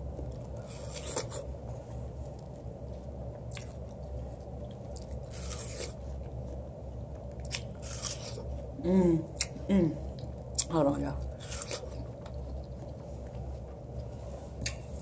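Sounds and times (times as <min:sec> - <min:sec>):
low hum: 0:00.0 - 0:15.0
crunching watermelon: 0:00.4 - 0:01.5, 0:04.7 - 0:06.1, 0:07.4 - 0:08.5, 0:11.4 - 0:12.8.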